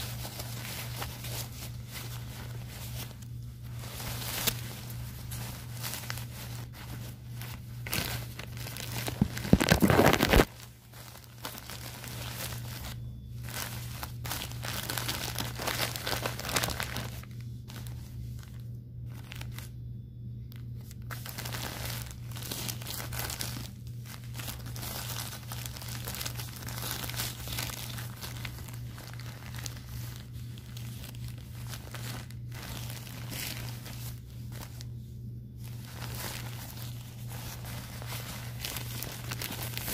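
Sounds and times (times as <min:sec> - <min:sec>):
plastic diaper crinkling: 0:00.0 - 0:19.8, 0:20.4 - 0:39.9.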